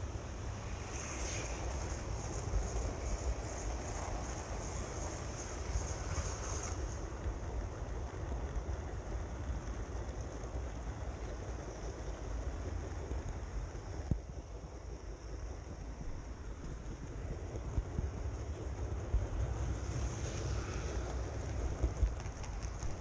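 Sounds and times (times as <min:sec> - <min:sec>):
thin high whine: 0:00.0 - 0:07.2.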